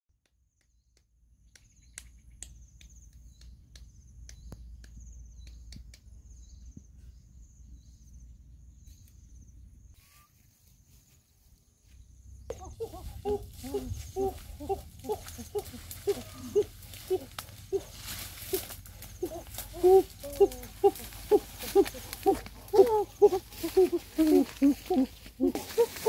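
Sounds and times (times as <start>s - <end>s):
insects trilling: 12.4s - 26.0s.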